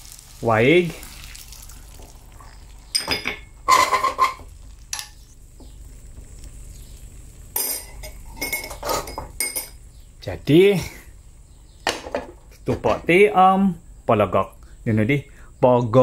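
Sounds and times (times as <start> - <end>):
metal utensil clinking on clay pot: 3.0 - 4.4, 7.6 - 9.8.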